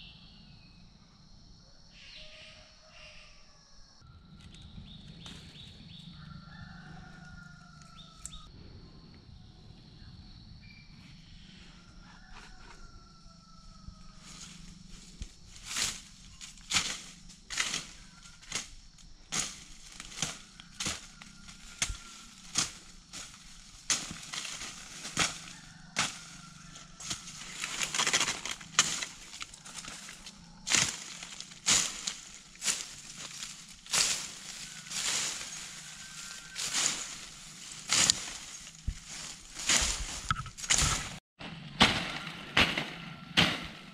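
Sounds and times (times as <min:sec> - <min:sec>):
machete chopping brush: 0:15.6 - 0:43.9.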